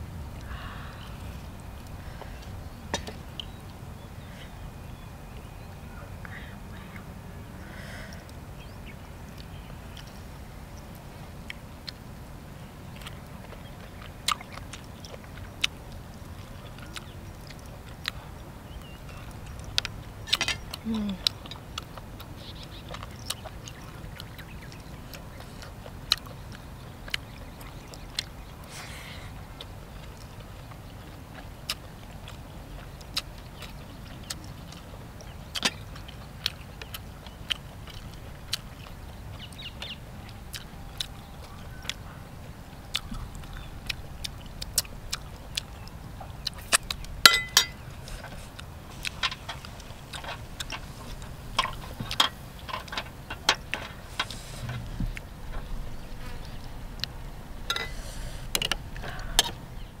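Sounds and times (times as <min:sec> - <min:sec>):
low steady rumble: 0:00.0 - 1:00.0
person chewing wetly: 0:00.4 - 0:03.7, 0:09.2 - 0:59.9.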